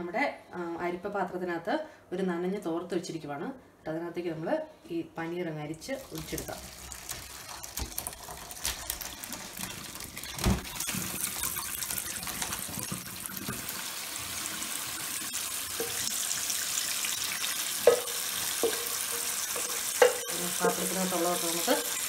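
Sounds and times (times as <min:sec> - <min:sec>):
tap running into a sink: 0:17.8 - 0:19.0
spoon clinking against steel pot: 0:17.8 - 0:21.0.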